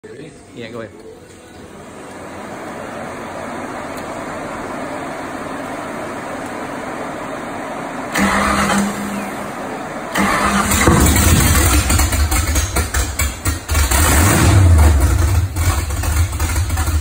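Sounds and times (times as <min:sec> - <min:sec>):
engine starter cranking: 0:08.1 - 0:09.2, 0:10.1 - 0:17.0
engine running loud through open headers: 0:08.1 - 0:17.0.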